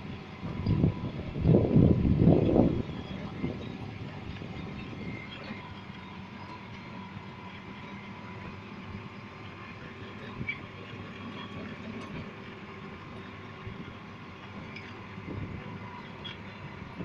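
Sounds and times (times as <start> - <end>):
ride car engine drone: 0.0 - 17.0
running gear rumble: 0.0 - 17.0.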